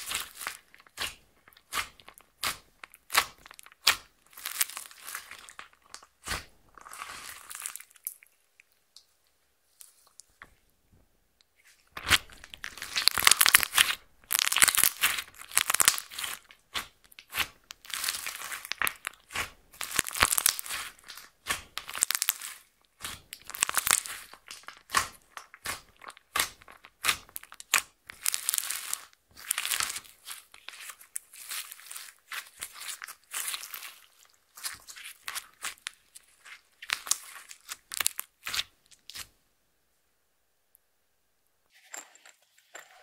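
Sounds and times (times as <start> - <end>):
slime squishing and popping: 0.0 - 8.7, 12.0 - 39.3.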